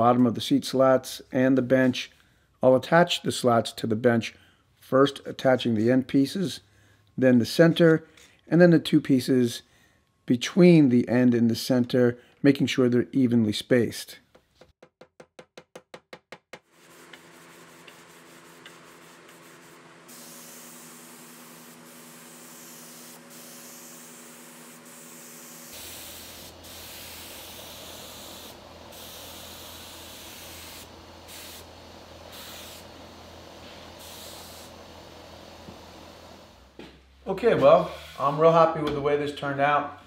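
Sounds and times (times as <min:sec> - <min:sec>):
spray gun hissing: 0:16.8 - 0:36.8.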